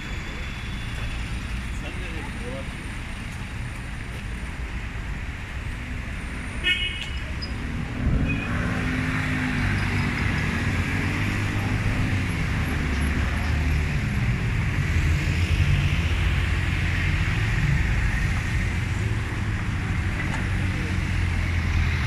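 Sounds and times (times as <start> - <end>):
road noise: 0.0 - 22.0
vehicle engines humming: 0.0 - 22.0.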